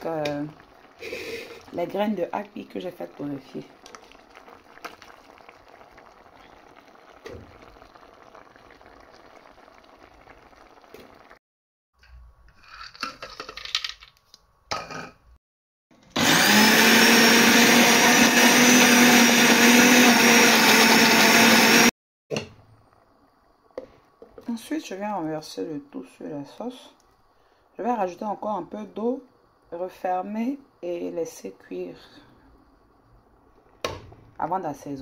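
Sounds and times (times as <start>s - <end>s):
blender running: 16.1s - 21.9s.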